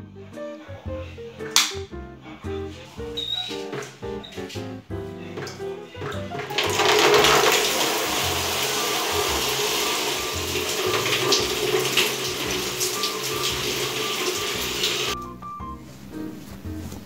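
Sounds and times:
background music: 0:00.0 - 0:17.0
shower water running and splashing: 0:03.6 - 0:15.2.

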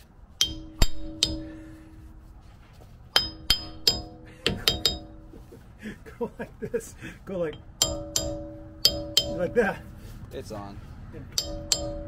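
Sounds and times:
mallet tapping metal cap: 0:03.2 - 0:05.2, 0:07.6 - 0:09.6, 0:11.4 - 0:12.0.

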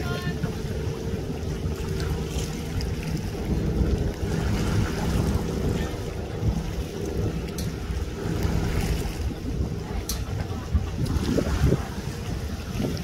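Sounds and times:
outboard motor idling: 0:00.0 - 0:13.0
wind buffeting microphone: 0:00.0 - 0:13.0.

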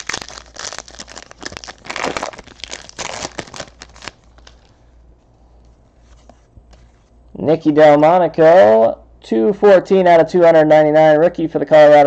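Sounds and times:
foil wrapper crinkling and tearing: 0:00.0 - 0:04.8.

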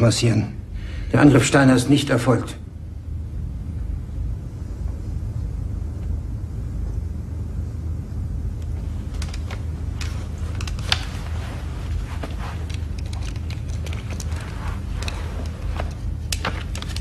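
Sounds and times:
low room rumble: 0:00.0 - 0:17.0
faint clicks and rustles: 0:08.5 - 0:17.0.

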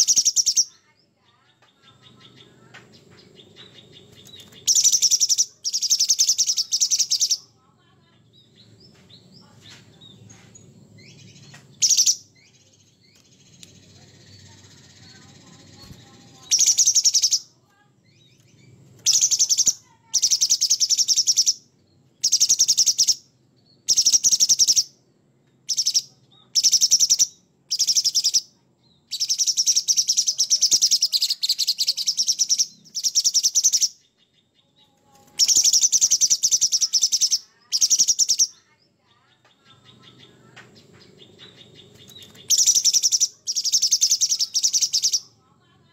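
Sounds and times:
bird chattering rapidly: 0:00.0 - 0:00.8, 0:01.8 - 0:07.5, 0:11.0 - 0:17.5, 0:18.2 - 0:21.6, 0:22.2 - 0:23.2, 0:23.9 - 0:24.9, 0:25.7 - 0:28.5, 0:29.1 - 0:34.0, 0:35.3 - 0:45.4.

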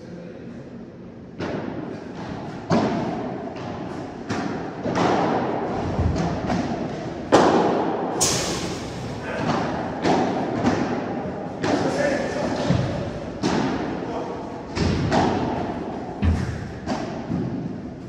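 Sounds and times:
padel ball struck by rackets: 0:02.7 - 0:11.0.

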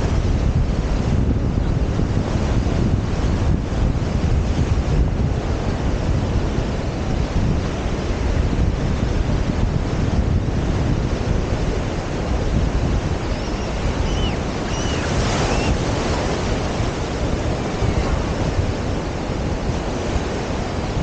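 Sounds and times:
ocean surf breaking on shore: 0:00.0 - 0:21.0
wind buffeting microphone: 0:00.0 - 0:21.0
distant high-pitched cries: 0:13.2 - 0:15.8.

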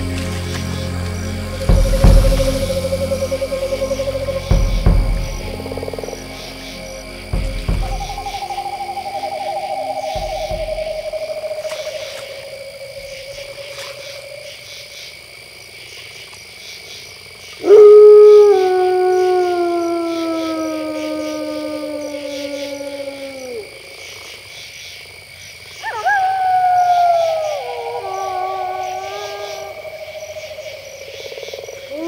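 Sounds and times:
wolf howls: 0:07.7 - 0:14.4, 0:17.6 - 0:23.9, 0:25.8 - 0:30.4.

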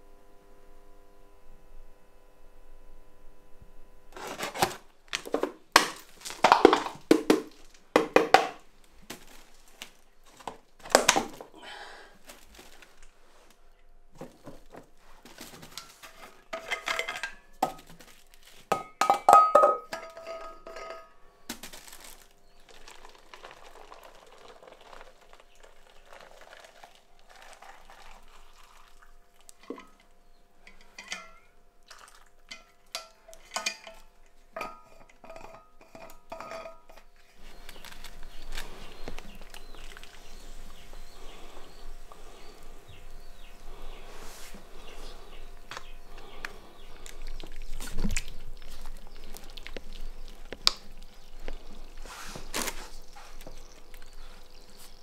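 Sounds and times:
dishes and pots clattering: 0:15.6 - 0:18.1, 0:18.7 - 0:21.2, 0:29.6 - 0:30.0, 0:30.6 - 0:31.6, 0:32.5 - 0:37.1.

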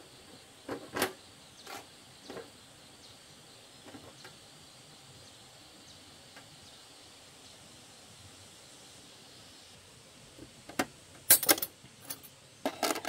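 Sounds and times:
insect drone: 0:00.0 - 0:13.0
metal tools clinking in toolbox: 0:11.3 - 0:13.0.

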